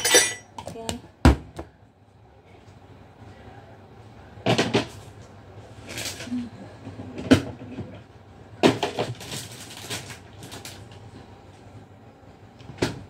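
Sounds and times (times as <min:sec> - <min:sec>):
cookware clattering: 0:00.0 - 0:00.5.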